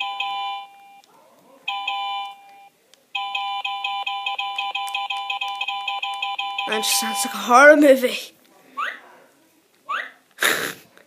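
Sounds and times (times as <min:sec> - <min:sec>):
toy laptop electronic beeps: 0:01.7 - 0:07.3.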